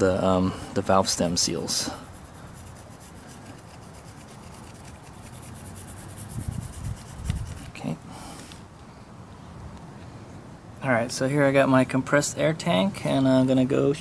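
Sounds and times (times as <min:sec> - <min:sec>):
brush scratching metal: 0:01.1 - 0:07.9.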